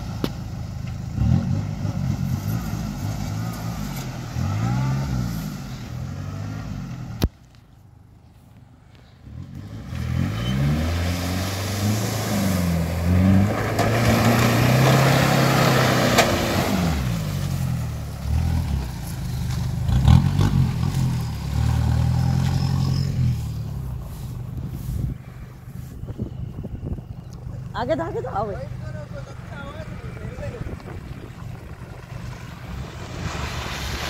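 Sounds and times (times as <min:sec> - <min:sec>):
suv engine revving: 0:00.0 - 0:07.3, 0:09.2 - 0:34.0
rushing noise: 0:30.2 - 0:34.0.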